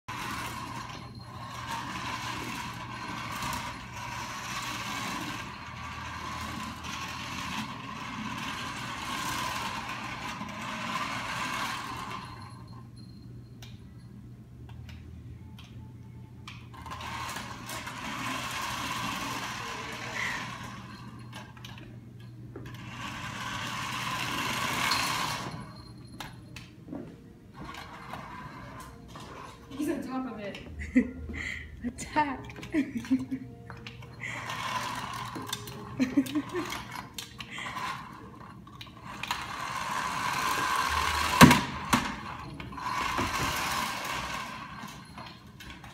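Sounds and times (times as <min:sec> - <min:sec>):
toy car motor whirring: 0:00.1 - 0:12.7, 0:16.7 - 0:21.4, 0:22.7 - 0:26.0, 0:34.1 - 0:45.9.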